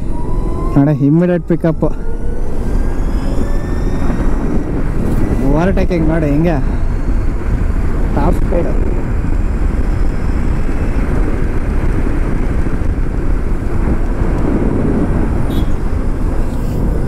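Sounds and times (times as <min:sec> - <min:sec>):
tyre and road noise: 0:00.0 - 0:17.0
wind rushing over microphone: 0:00.0 - 0:17.0.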